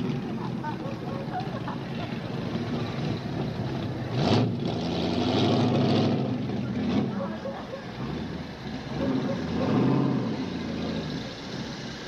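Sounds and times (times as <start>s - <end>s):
car engine running slowly: 0.0s - 12.0s.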